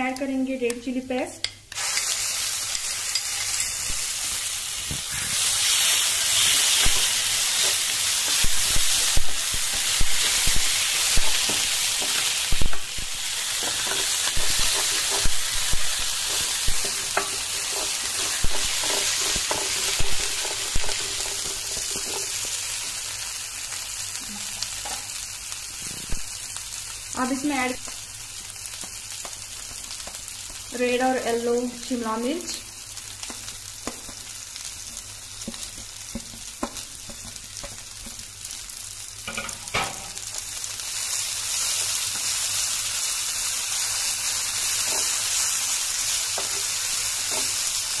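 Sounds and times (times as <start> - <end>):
oil sizzling in a pan: 0.0 - 48.0
wooden spatula scraping pan: 16.2 - 22.4.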